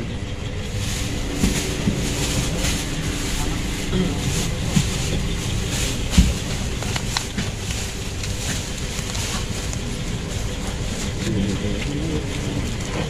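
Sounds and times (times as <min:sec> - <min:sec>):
low rumble background noise: 0:00.0 - 0:13.0
foam and tissue rustling: 0:00.6 - 0:13.0
dull bump: 0:01.2 - 0:07.7.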